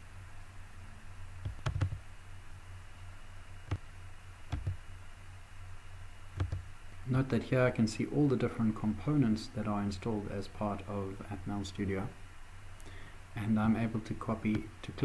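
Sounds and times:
steady low hum: 0:00.0 - 0:15.0
computer mouse clicks: 0:04.5 - 0:04.8, 0:06.4 - 0:06.6.

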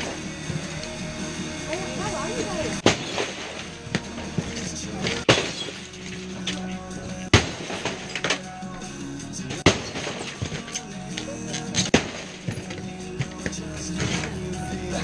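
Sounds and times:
background music: 0:00.0 - 0:15.0
debris clattering: 0:00.0 - 0:15.0
heavy tool strikes: 0:02.8 - 0:06.1, 0:07.3 - 0:08.5, 0:09.5 - 0:10.9, 0:11.8 - 0:14.4
glass breaking: 0:02.8 - 0:08.7, 0:09.4 - 0:14.4.

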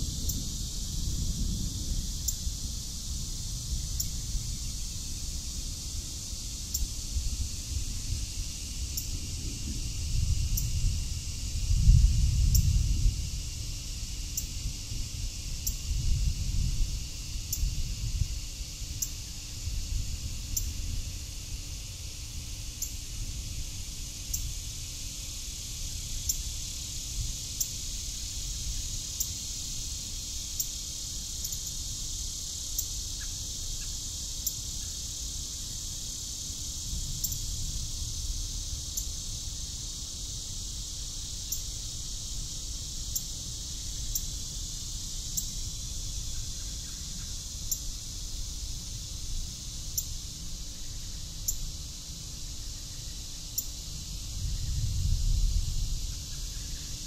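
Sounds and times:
insects shrilling: 0:22.7 - 0:57.0.

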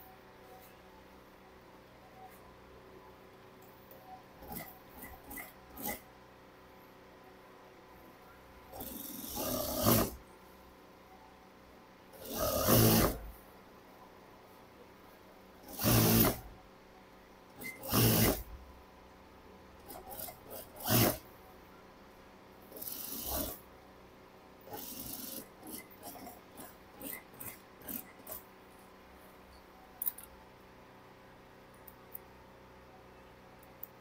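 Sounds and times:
sewing machine stitching: 0:04.4 - 0:06.0, 0:08.7 - 0:10.2, 0:12.2 - 0:13.4, 0:15.6 - 0:16.5, 0:17.5 - 0:18.6, 0:19.8 - 0:21.3, 0:22.7 - 0:23.7, 0:24.7 - 0:28.4.

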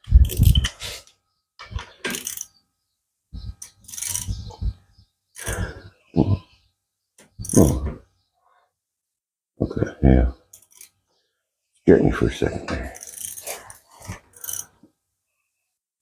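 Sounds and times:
wrench clinking and scraping metal: 0:00.1 - 0:00.8, 0:01.6 - 0:02.6, 0:03.6 - 0:04.5, 0:10.5 - 0:11.0, 0:12.8 - 0:14.8.

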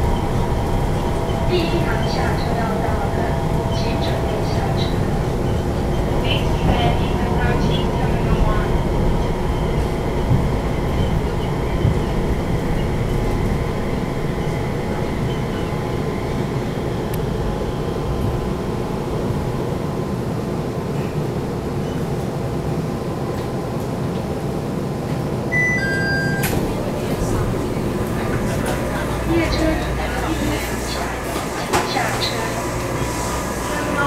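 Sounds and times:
train rumbling with whining tones: 0:00.0 - 0:34.0
two-note chime: 0:25.5 - 0:26.6.

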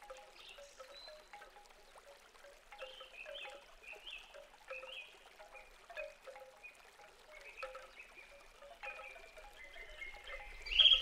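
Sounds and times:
wind chimes ringing: 0:07.6 - 0:11.0.

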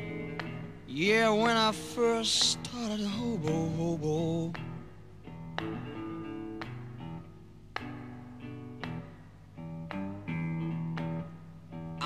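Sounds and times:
slow blues guitar: 0:00.0 - 0:12.0.

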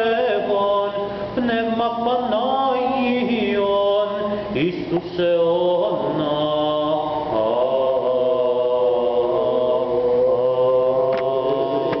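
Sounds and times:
voices chanting long notes: 0:05.9 - 0:12.0.

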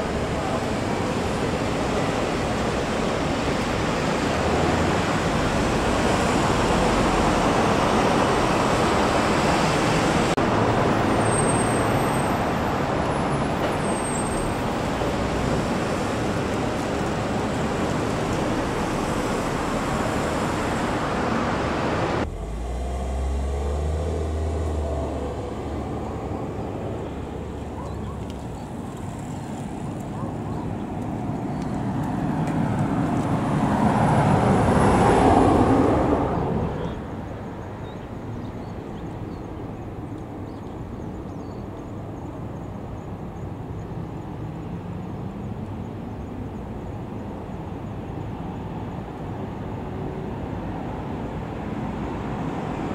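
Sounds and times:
road traffic passing: 0:00.0 - 0:52.9
low rumble: 0:22.2 - 0:26.6.

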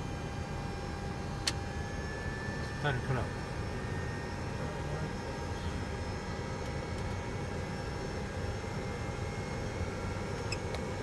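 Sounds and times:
steady whining tones: 0:00.0 - 0:11.0.

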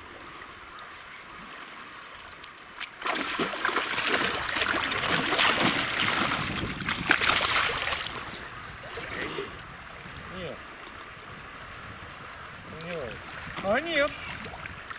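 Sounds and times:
river water flowing: 0:00.0 - 0:14.9
fish thrashing and splashing: 0:03.0 - 0:08.3.

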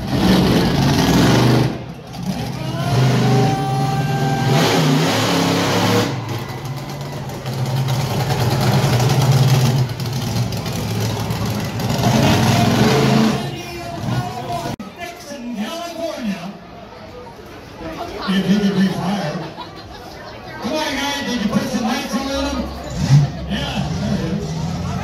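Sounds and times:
monster truck engine revving: 0:00.0 - 0:14.8, 0:22.4 - 0:25.0.

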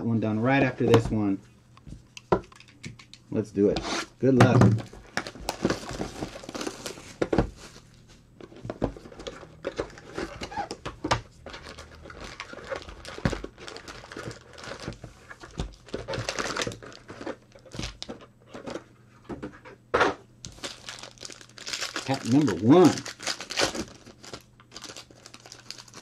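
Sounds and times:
foil packs crinkling: 0:04.8 - 0:07.8, 0:08.4 - 0:18.8, 0:20.4 - 0:26.0.

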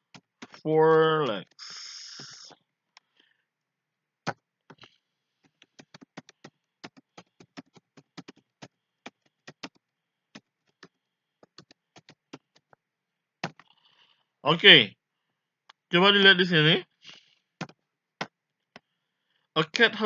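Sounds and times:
keyboard keys clicking: 0:04.7 - 0:09.8, 0:10.4 - 0:12.8.

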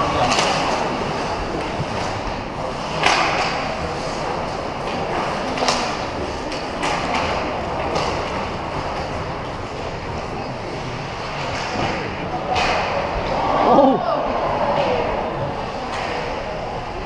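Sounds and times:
stick hitting puck: 0:02.8 - 0:03.8.

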